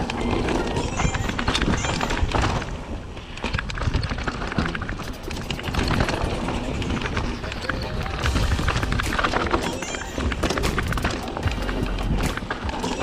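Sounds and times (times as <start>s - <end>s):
mountain bike rattling over rocks: 0.0s - 13.0s
steady low rumble: 10.2s - 13.0s.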